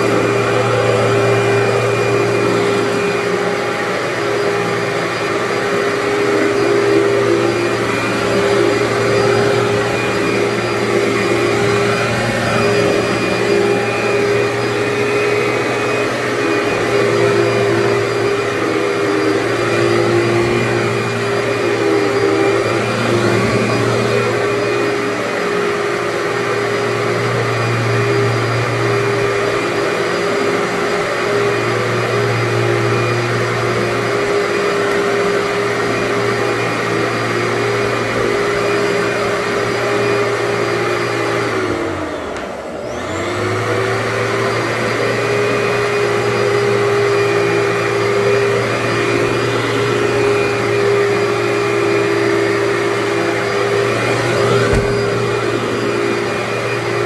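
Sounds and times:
vacuum cleaner running: 0.0s - 57.0s.

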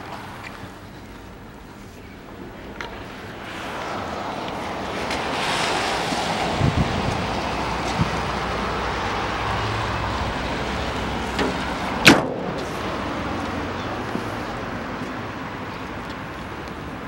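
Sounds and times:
wind noise on microphone: 2.5s - 17.0s
car door shutting: 11.3s - 12.6s.

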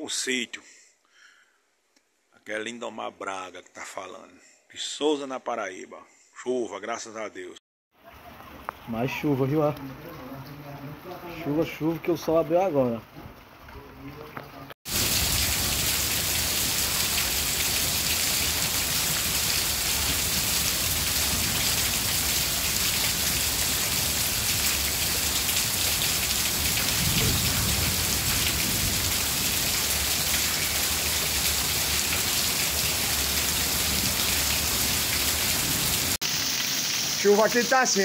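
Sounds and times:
heavy rain on street and cars: 8.0s - 38.0s.

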